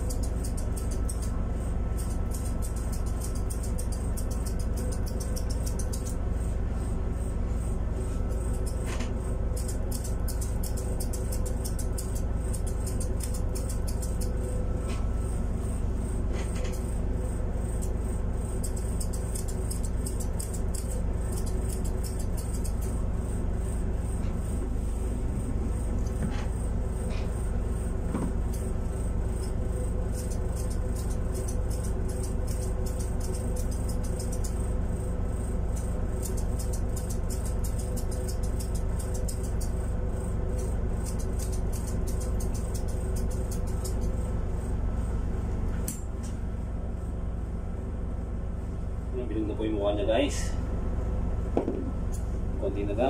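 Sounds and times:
grooming scissors snipping: 0.0s - 1.4s, 2.0s - 6.2s, 8.3s - 15.0s, 17.7s - 23.0s, 29.3s - 34.7s, 35.7s - 39.9s, 40.5s - 44.2s, 45.8s - 46.4s
electric motor hum: 0.0s - 53.0s.

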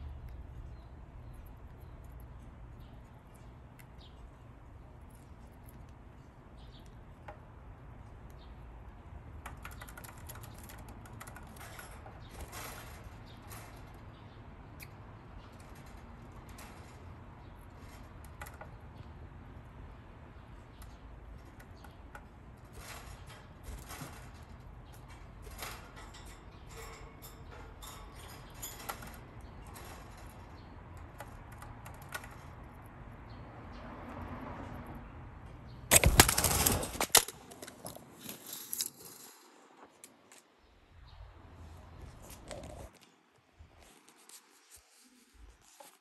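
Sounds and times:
budgies clicking and scratching: 0.1s - 34.1s
rustling bursts: 35.9s - 39.4s.

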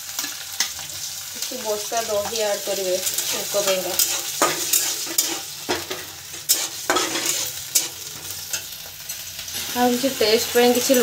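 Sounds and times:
oil sizzling: 0.0s - 11.0s
metal spatula scraping a pan: 0.1s - 1.2s, 1.9s - 9.3s.

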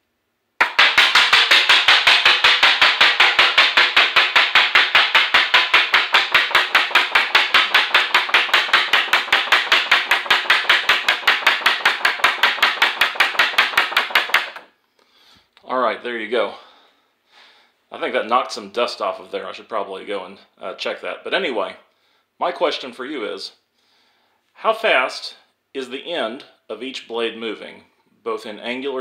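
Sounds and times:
fan blades slapping cardstock: 0.6s - 14.7s.

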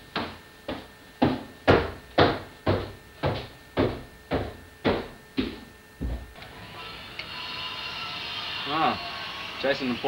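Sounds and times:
heavy footsteps with echo: 0.0s - 6.4s.

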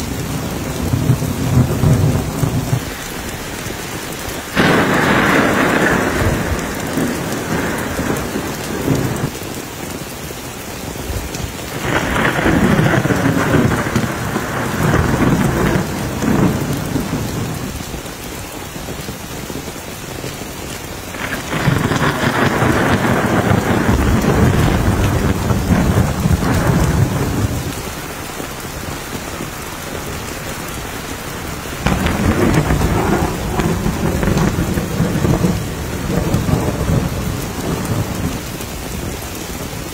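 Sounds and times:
heavy rain pattering: 0.0s - 39.9s
rolls of thunder: 0.6s - 9.3s, 11.7s - 17.7s, 21.1s - 27.9s, 31.8s - 38.7s.

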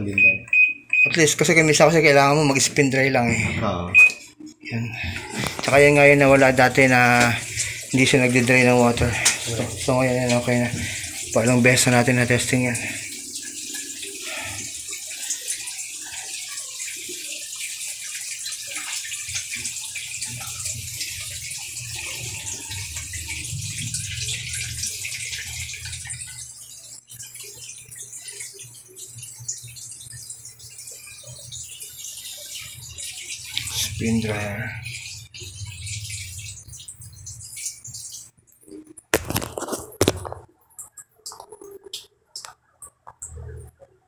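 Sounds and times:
washing machine draining water: 0.0s - 44.0s.

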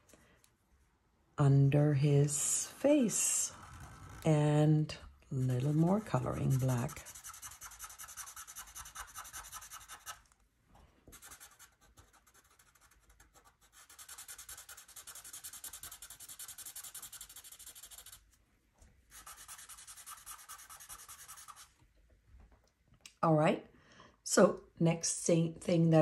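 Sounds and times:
marker scribbling on paper: 5.4s - 10.2s, 11.1s - 18.2s, 19.1s - 21.7s.

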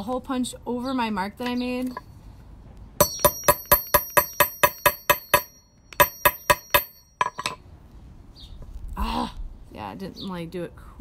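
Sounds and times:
hammer striking metal punch: 3.0s - 7.6s.

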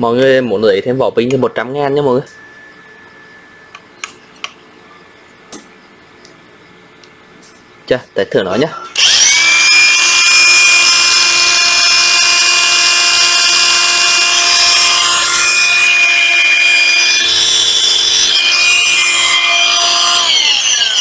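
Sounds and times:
angle grinder whining: 8.9s - 21.0s.

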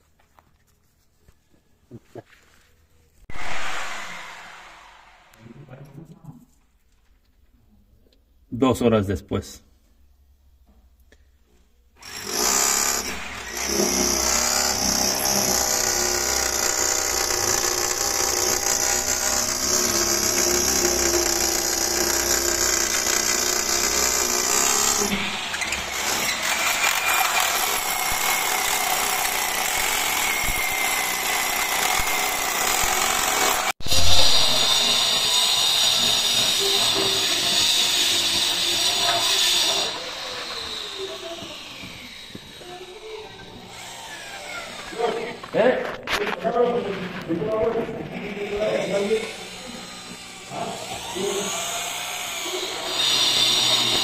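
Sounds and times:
power tool running: 3.3s - 5.4s, 12.0s - 45.6s, 48.1s - 54.0s.

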